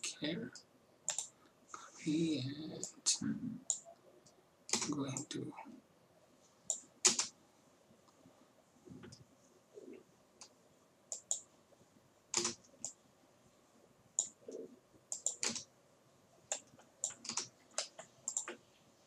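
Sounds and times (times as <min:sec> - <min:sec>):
keyboard keys clicking: 0:01.1 - 0:01.3, 0:12.3 - 0:13.0, 0:14.2 - 0:15.6, 0:16.5 - 0:18.6
computer mouse clicks: 0:01.1 - 0:01.4, 0:03.7 - 0:05.3, 0:06.7 - 0:07.4, 0:10.4 - 0:11.5, 0:12.3 - 0:13.0, 0:14.2 - 0:15.7, 0:16.5 - 0:18.6.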